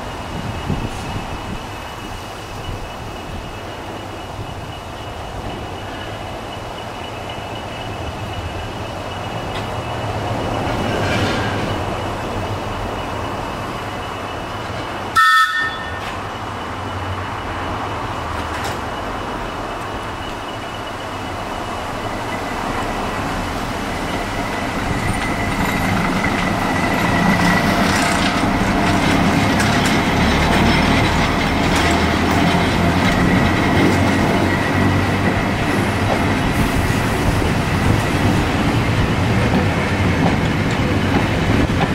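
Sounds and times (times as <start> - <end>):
train rumble and clatter: 0.0 - 41.9
locomotive horn blast: 15.1 - 16.2.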